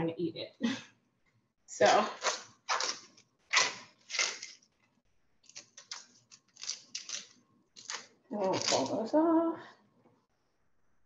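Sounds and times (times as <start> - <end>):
leaves ripping by hand: 2.2 - 4.6.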